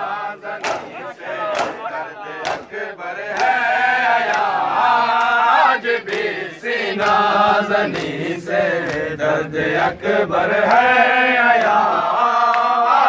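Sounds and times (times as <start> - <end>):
men chanting: 0.0 - 13.0
chest slaps in unison: 0.6 - 2.8.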